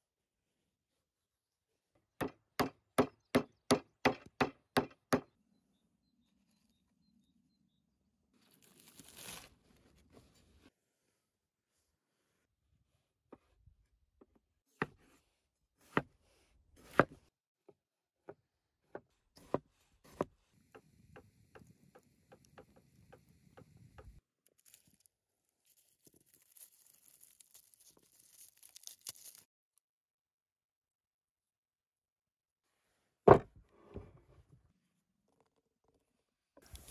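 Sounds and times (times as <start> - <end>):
knife chopping on wooden board: 16.8 - 17.2.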